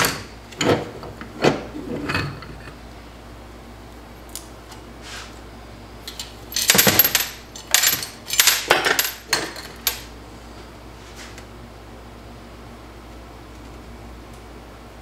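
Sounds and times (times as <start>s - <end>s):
metal parts clattering and clinking: 6.1s - 10.1s.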